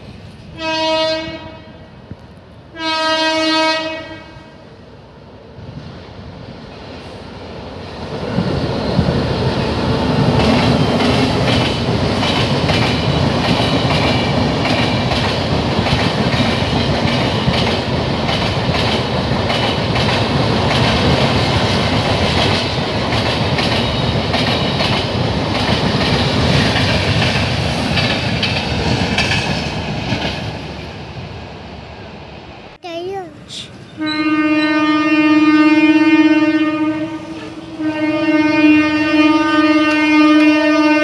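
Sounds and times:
train wheels rushing on rail: 3.9s - 32.3s.

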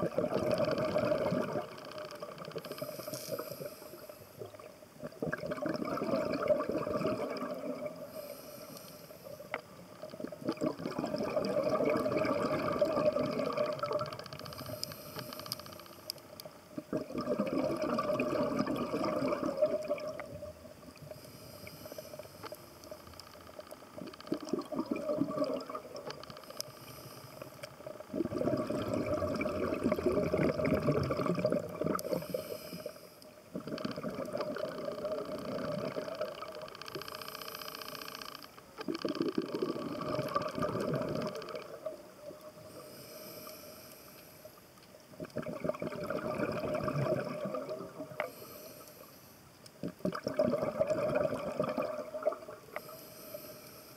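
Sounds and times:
bubbling regulator exhales: 0.0s - 9.5s, 10.1s - 15.6s, 16.8s - 22.6s, 24.0s - 38.2s, 38.8s - 43.4s, 45.2s - 48.8s, 49.8s - 53.5s
hissing regulator inhales: 2.7s - 4.4s, 8.1s - 9.5s, 14.6s - 16.1s, 21.0s - 22.8s, 26.4s - 27.7s, 32.0s - 33.2s, 42.7s - 44.6s, 48.2s - 49.4s, 52.7s - 53.9s.

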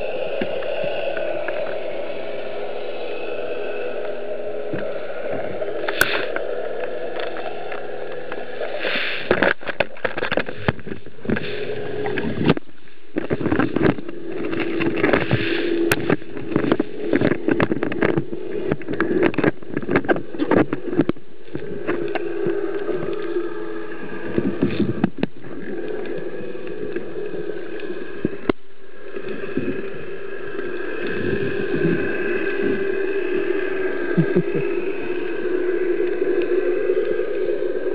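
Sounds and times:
underwater low hum: 0.0s - 37.9s
crackling and knocks: 4.7s - 33.4s.

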